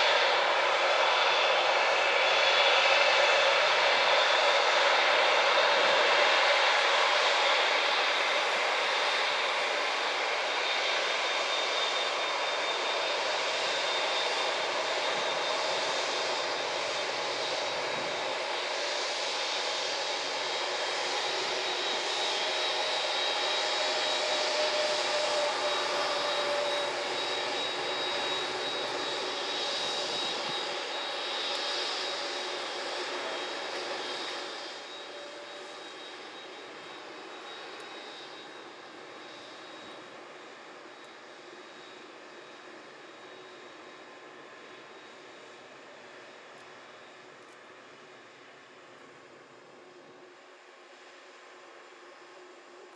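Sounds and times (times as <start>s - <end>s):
jet engines roaring and whining: 0.0s - 52.9s.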